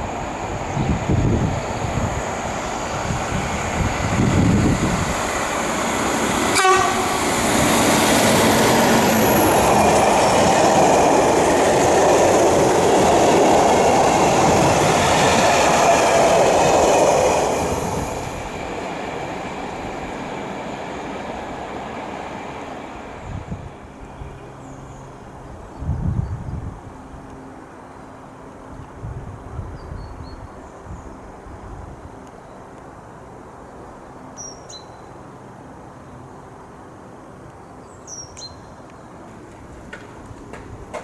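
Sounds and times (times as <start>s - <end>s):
freight train wheels on rails: 0.0s - 24.6s, 38.8s - 41.0s.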